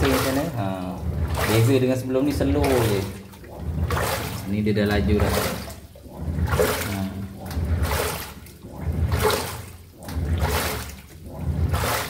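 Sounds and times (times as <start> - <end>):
motor hum: 0.0 - 12.0
water sloshing in washing machine: 0.0 - 12.0.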